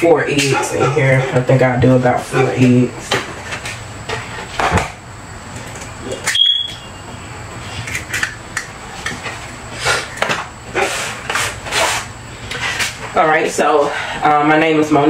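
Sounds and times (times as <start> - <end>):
short high-pitched beep: 6.3 - 7.0.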